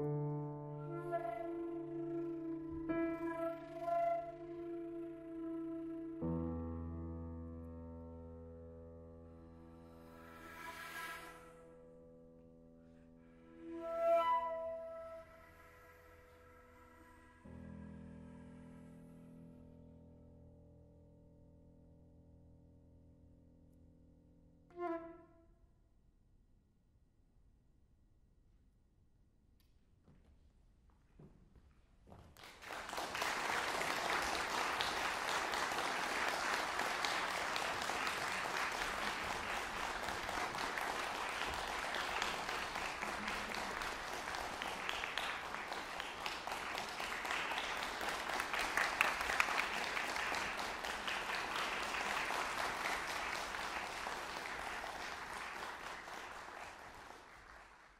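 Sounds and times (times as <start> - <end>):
audience applauding: 32.4 - 57.9.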